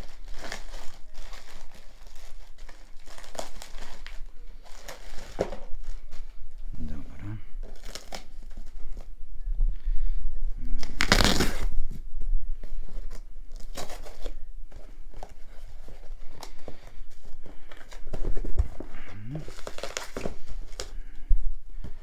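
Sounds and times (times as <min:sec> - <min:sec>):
packing tape ripping: 0:00.0 - 0:05.9, 0:07.6 - 0:08.7, 0:10.8 - 0:11.8, 0:13.1 - 0:14.4, 0:19.4 - 0:21.0
cardboard and bubble wrap rustling: 0:00.0 - 0:09.2, 0:10.6 - 0:22.0.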